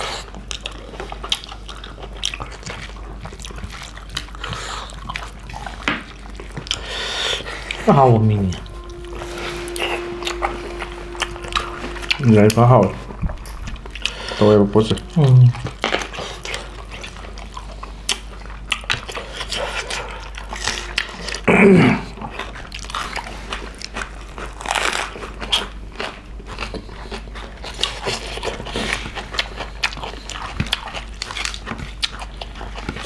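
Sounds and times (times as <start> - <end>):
chewing and crunching: 0.0 - 8.5, 15.1 - 21.4, 22.1 - 33.0.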